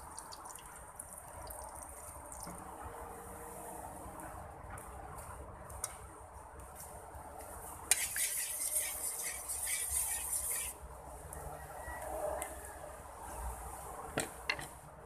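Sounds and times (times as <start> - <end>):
oil sizzling in a wok: 7.9 - 10.7.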